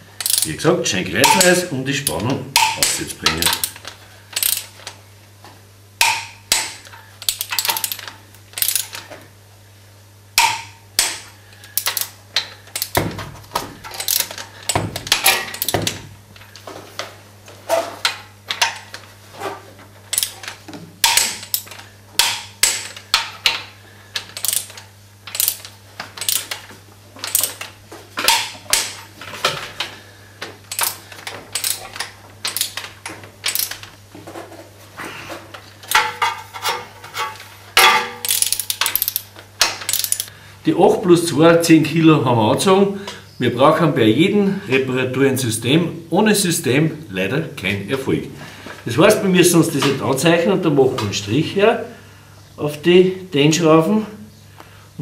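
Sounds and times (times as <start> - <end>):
torque wrench ratcheting and clicking: 0.2 - 0.6, 1.2 - 4.8, 6.0 - 9.0, 10.4 - 13.0, 13.9 - 16.0, 20.1 - 23.6, 24.2 - 26.6, 27.2 - 27.7, 30.7 - 33.8, 38.2 - 40.3.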